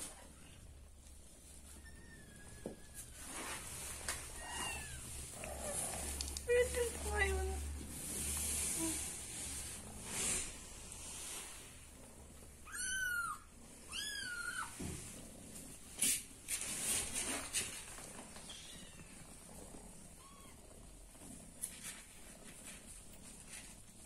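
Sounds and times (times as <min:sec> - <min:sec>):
rustling: 0:00.0 - 0:24.0
kitten meowing: 0:12.6 - 0:14.7.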